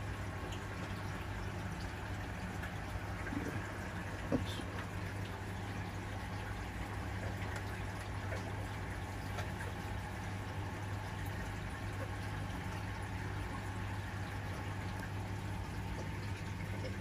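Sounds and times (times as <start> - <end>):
aquarium pump hum: 0.0 - 17.0
water trickling and bubbling: 0.0 - 17.0.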